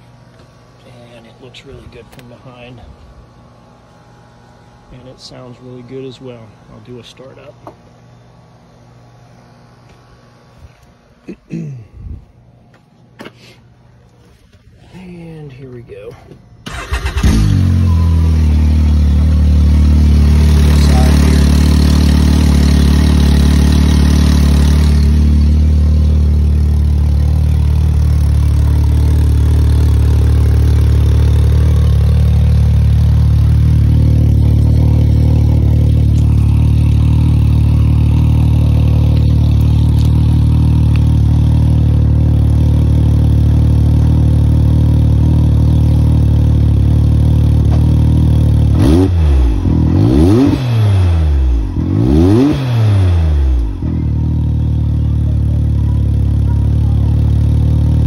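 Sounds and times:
engine idling: 14.8s - 50.2s, 53.2s - 58.0s.

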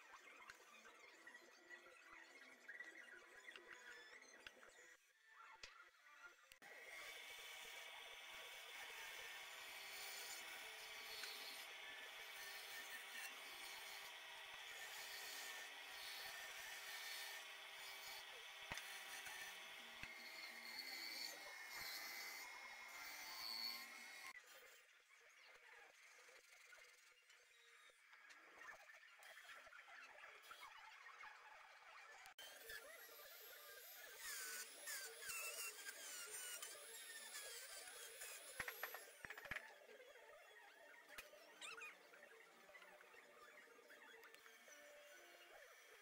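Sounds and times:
band saw cutting wood: 6.6s - 24.4s, 32.4s - 39.5s
trim router whining: 6.6s - 24.4s.

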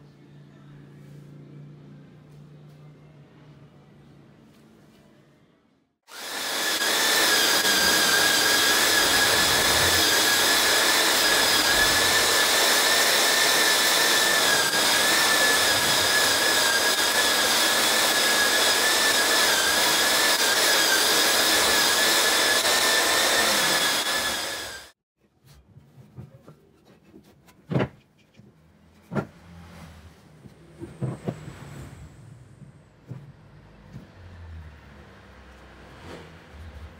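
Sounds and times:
belt sander running on wood: 6.1s - 24.9s.

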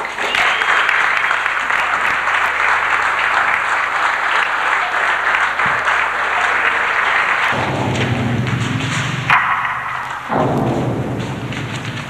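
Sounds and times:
audience applauding: 0.0s - 12.0s
low hum: 7.6s - 12.0s.

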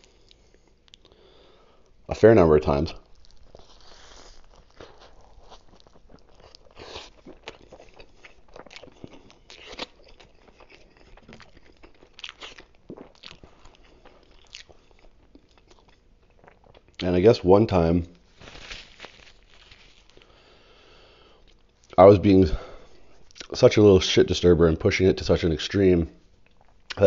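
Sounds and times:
person chewing food: 0.0s - 2.0s, 3.0s - 17.1s, 18.5s - 22.0s, 26.4s - 27.0s.

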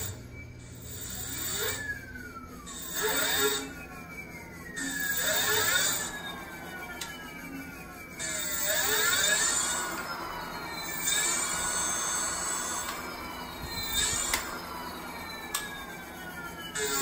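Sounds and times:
electric hub motor whine: 0.0s - 17.0s.

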